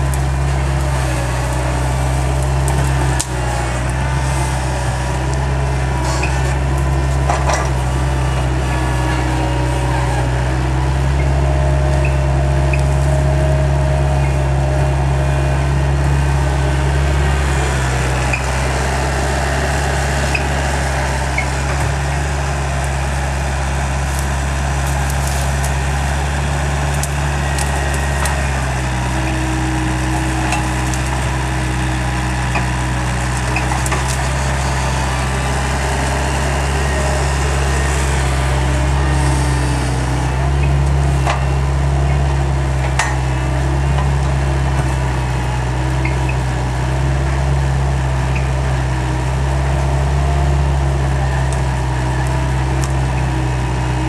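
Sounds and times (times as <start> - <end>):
skid steer engine running: 0.0 - 54.0
branches cracking and snapping: 16.0 - 45.3.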